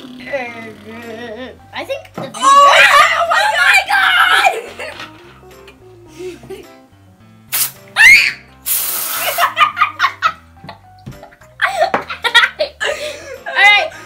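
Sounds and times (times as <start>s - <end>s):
background music: 0.0s - 14.0s
children laughing and shrieking: 2.4s - 5.0s, 8.0s - 8.4s
burst of hiss: 7.5s - 7.8s, 8.6s - 9.6s.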